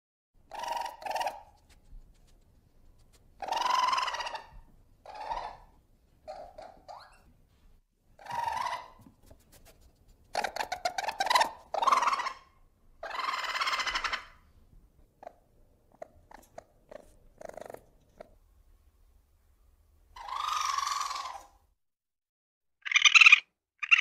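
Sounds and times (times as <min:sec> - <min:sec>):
ferret call: 0:22.8 - 0:24.0.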